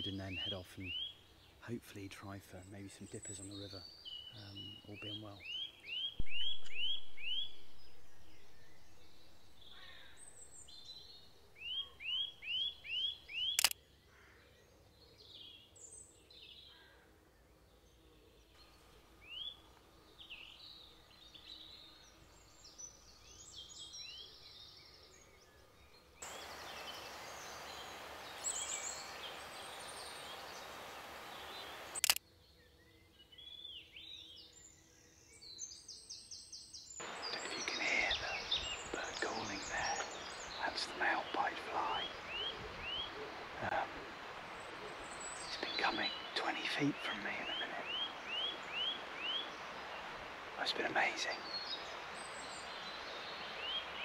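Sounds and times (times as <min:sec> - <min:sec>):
birds calling faintly: 0:00.0 - 0:54.0
songbird singing high notes: 0:03.4 - 0:13.8, 0:26.2 - 0:32.2, 0:37.0 - 0:54.0
steady hiss: 0:26.2 - 0:32.2, 0:37.0 - 0:54.0
sharp click: 0:32.0 - 0:32.2.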